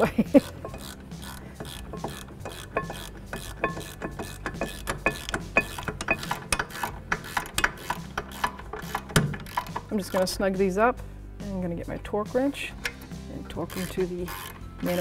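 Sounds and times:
ratcheting wrench clicking: 0:00.4 - 0:10.3, 0:12.8 - 0:15.0.

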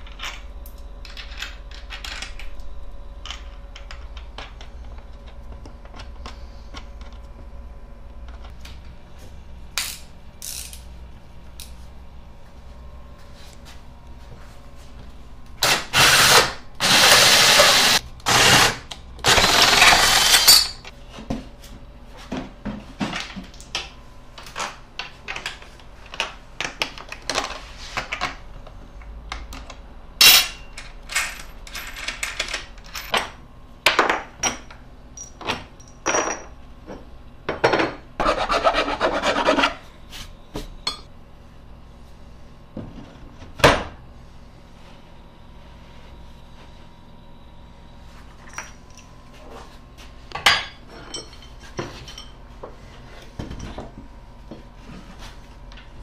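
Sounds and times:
cordless drill boring into wood: 0:15.6 - 0:20.6.

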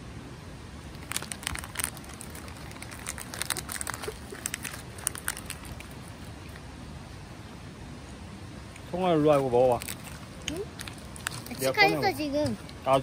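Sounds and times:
plastic pouch crinkling: 0:00.9 - 0:06.6, 0:09.6 - 0:11.8.

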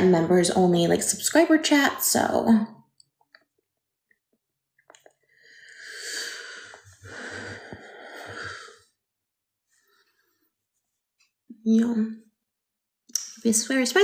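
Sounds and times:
person breathing out heavily: 0:05.3 - 0:08.9.

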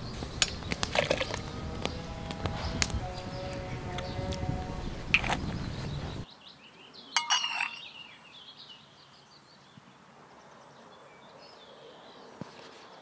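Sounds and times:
porcelain clinking: 0:07.2 - 0:07.9.

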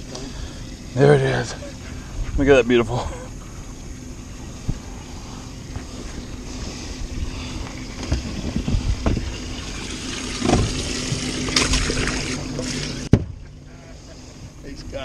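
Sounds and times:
steady low hum: 0:00.0 - 0:15.0
water splashing: 0:00.0 - 0:15.0
wind on microphone: 0:07.0 - 0:09.6.

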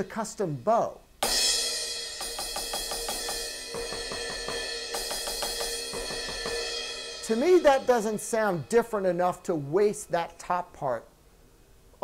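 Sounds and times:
electronic crash cymbal strokes: 0:01.2 - 0:09.7.

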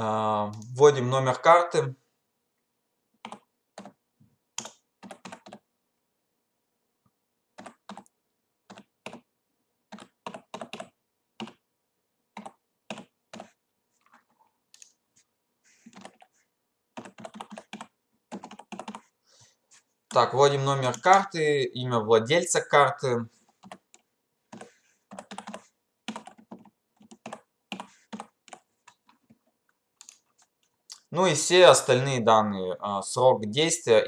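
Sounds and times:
typing on computer keyboard: 0:03.2 - 0:04.0, 0:04.6 - 0:05.7, 0:07.6 - 0:09.3, 0:09.9 - 0:11.6, 0:12.4 - 0:13.6, 0:15.9 - 0:16.3, 0:17.0 - 0:19.1, 0:23.6 - 0:30.5.

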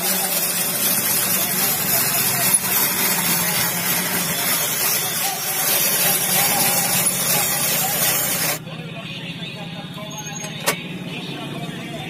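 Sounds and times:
ice shaving machine scraping: 0:00.0 - 0:08.6.

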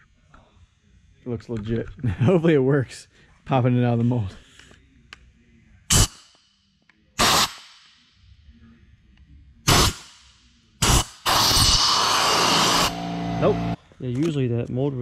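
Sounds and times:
compressed air blow gun hissing: 0:10.8 - 0:12.9.

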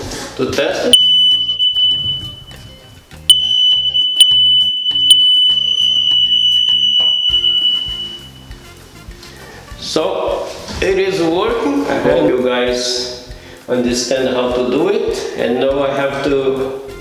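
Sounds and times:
background music: 0:00.0 - 0:17.0
smoke alarm test tone: 0:00.9 - 0:08.7.

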